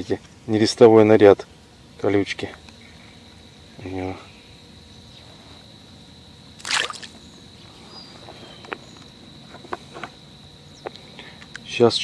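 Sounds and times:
fish splashing into bucket of water: 0:06.6 - 0:07.2.

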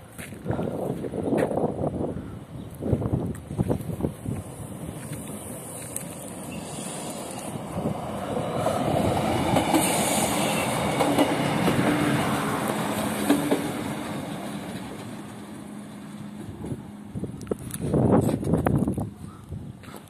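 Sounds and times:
train engine and wheels rumbling: 0:00.0 - 0:20.0
wheels clacking over rail joints: 0:04.4 - 0:16.8.

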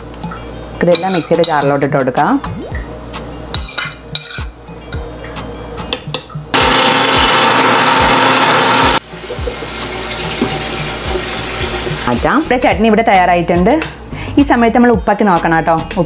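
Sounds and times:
mixer grinder motor: 0:06.6 - 0:09.0.

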